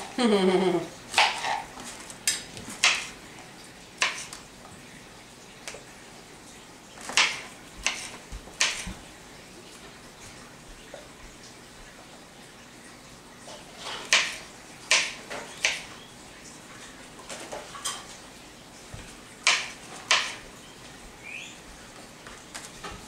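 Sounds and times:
knife chopping on plastic board: 2.8s - 3.1s, 7.1s - 9.0s, 14.1s - 15.9s, 19.4s - 20.4s.

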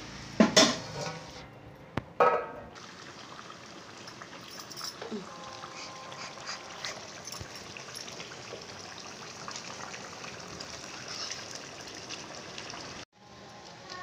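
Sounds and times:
water boiling in metal pot: 2.8s - 13.0s.

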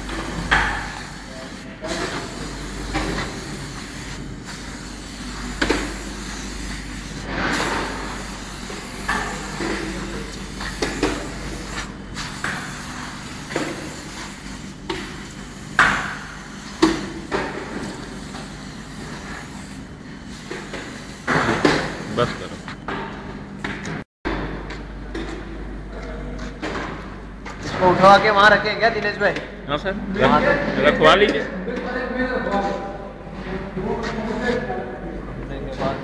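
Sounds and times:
machine hum: 0.0s - 26.4s.

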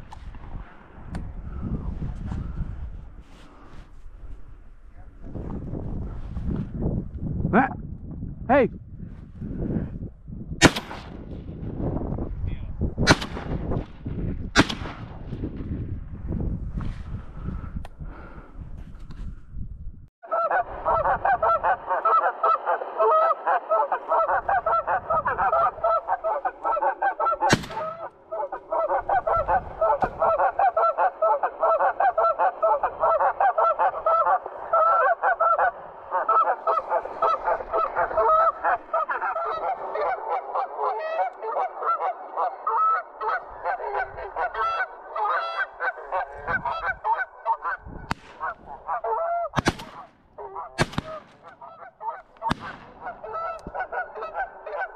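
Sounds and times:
goose honking rapidly: 20.3s - 49.6s, 50.4s - 54.9s.

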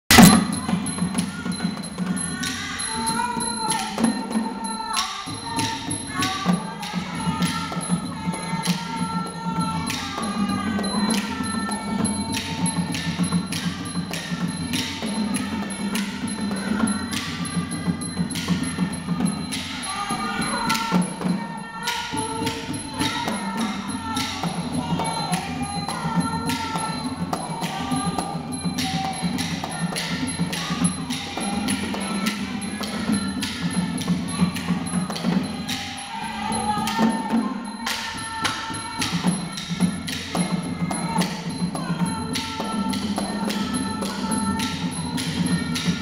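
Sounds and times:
drum beats: 0.0s - 46.0s
barrel drums beating: 0.1s - 2.6s
small hand cymbals ringing: 0.1s - 46.0s.

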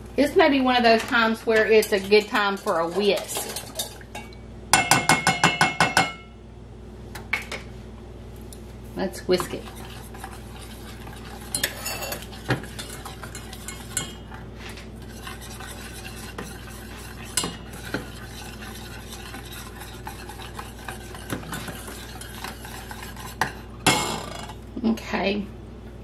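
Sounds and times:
wire whisk scraping a pan: 0.9s - 4.0s, 9.3s - 24.5s.

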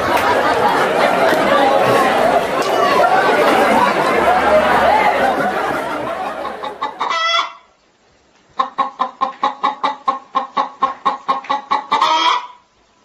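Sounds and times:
hen clucking: 0.0s - 7.6s, 8.6s - 12.6s.

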